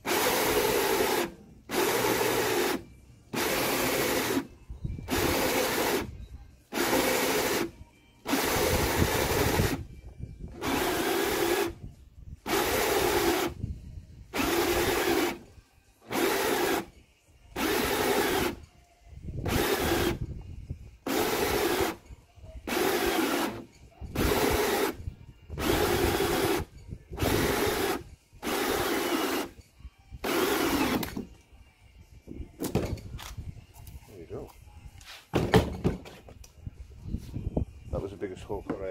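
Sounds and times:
drill with hole saw cutting plastic: 0:00.0 - 0:04.5, 0:05.1 - 0:09.8, 0:10.6 - 0:11.8, 0:12.4 - 0:13.6, 0:14.4 - 0:16.9, 0:17.6 - 0:18.6, 0:19.4 - 0:20.2, 0:21.0 - 0:22.0, 0:22.7 - 0:25.0, 0:25.6 - 0:29.6, 0:30.2 - 0:31.2.

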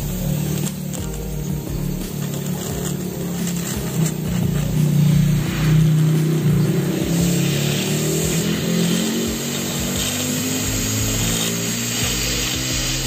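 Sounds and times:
motor humming: 0:00.0 - 0:13.0.

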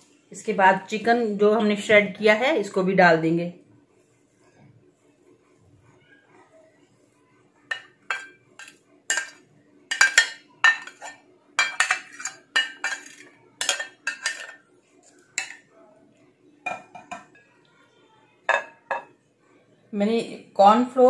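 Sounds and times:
spatula scraping glass bowl: 0:10.1 - 0:14.6.

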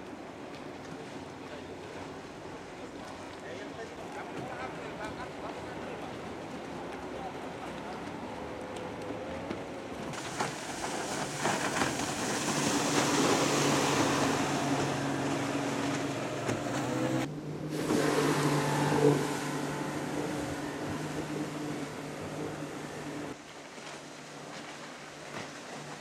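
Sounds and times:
outboard motor drone: 0:00.0 - 0:26.0
hiss of hull and wake spray: 0:10.1 - 0:26.0.

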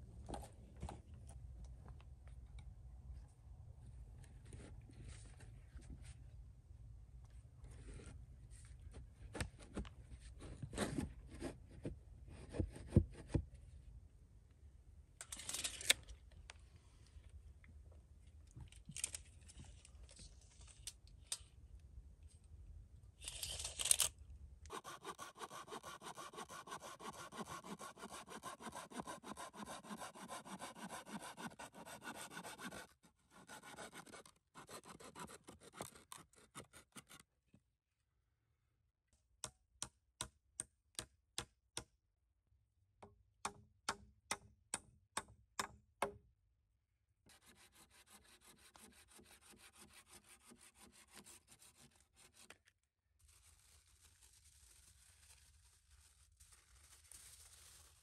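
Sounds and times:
hand saw cutting wood: 0:24.7 - 0:37.2, 0:47.3 - 0:52.6.

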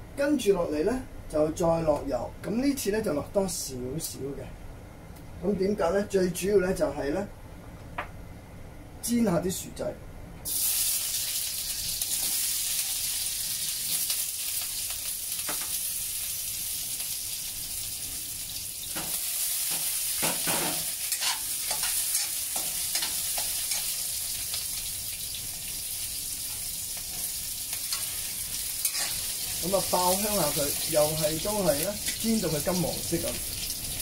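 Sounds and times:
potatoes sizzling in oil: 0:10.5 - 0:34.0.

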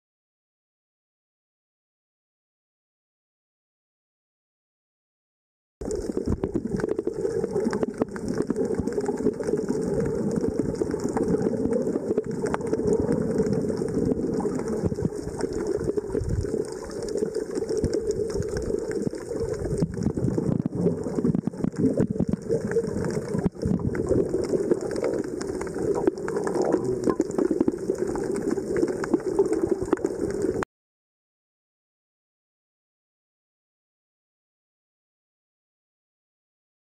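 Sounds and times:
faint crackling: 0:05.8 - 0:30.6
muffled underwater rush: 0:05.8 - 0:30.6.

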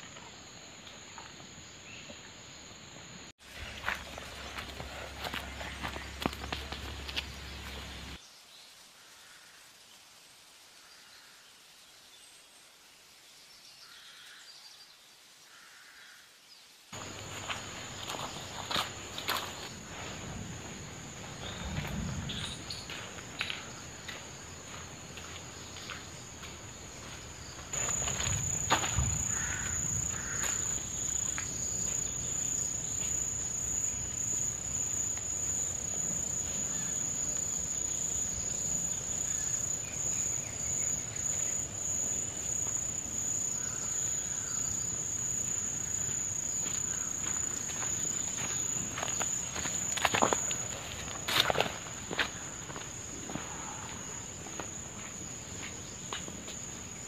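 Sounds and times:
insects droning: 0:00.0 - 0:57.0
footsteps on dirt trail: 0:03.4 - 0:08.2, 0:17.0 - 0:35.7, 0:45.3 - 0:57.0.

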